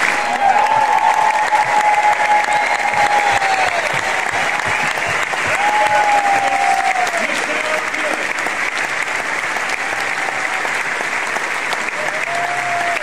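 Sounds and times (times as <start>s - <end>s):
crowd calls: 0.0s - 8.4s
audience applauding: 0.0s - 13.0s.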